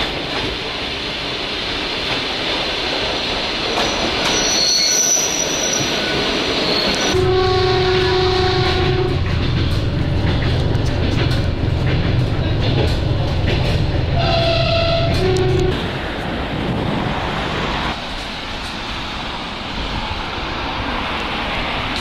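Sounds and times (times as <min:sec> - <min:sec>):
train running: 0:00.0 - 0:22.0
high wheel squeal: 0:03.8 - 0:07.2
train horn: 0:07.1 - 0:09.4, 0:14.2 - 0:15.8.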